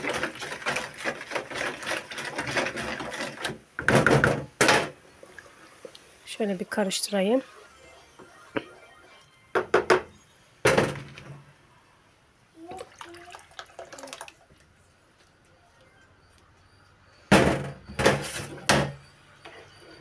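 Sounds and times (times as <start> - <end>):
boiling syrup spluttering: 0.0 - 3.5, 12.6 - 14.8.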